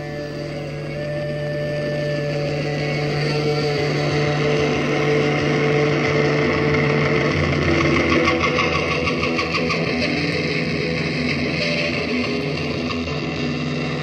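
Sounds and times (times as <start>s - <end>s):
droning tones from loudspeakers: 0.0s - 14.0s
low hum: 0.0s - 14.0s.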